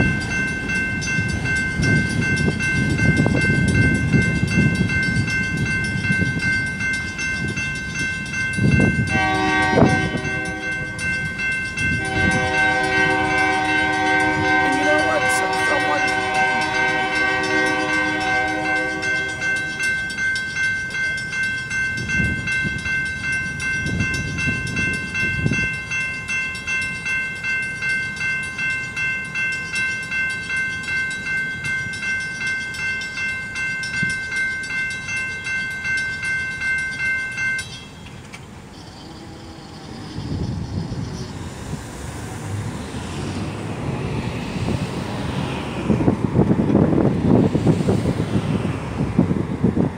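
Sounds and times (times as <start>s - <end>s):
crossing warning bell ringing: 0.0s - 49.9s
locomotive horn: 9.1s - 11.0s, 12.0s - 19.8s.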